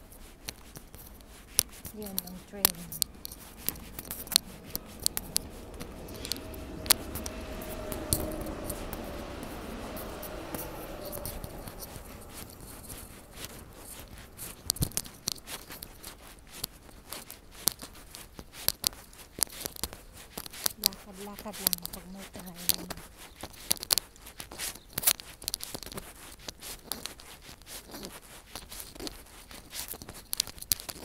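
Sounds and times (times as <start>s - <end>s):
sharp close clicks and scuffs: 0.0s - 6.5s, 11.1s - 31.0s
electric train rumbling: 1.9s - 16.2s, 20.8s - 23.1s.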